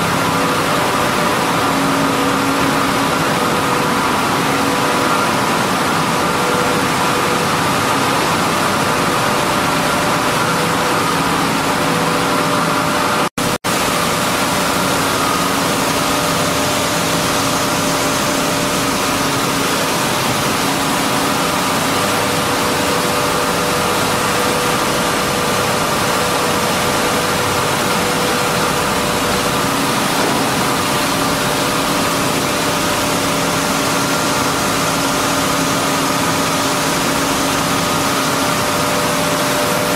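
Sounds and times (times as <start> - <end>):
milling machinery din: 24.1 - 33.1.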